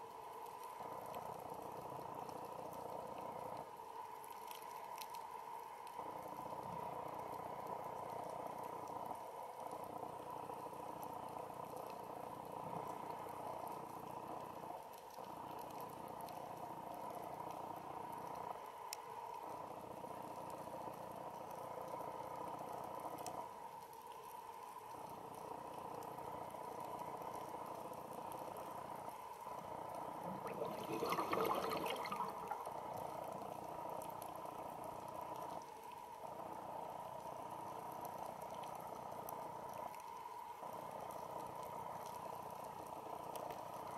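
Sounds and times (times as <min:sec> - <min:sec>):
underwater hum and hiss: 0:00.0 - 0:43.9
bubbling burst: 0:30.3 - 0:32.6.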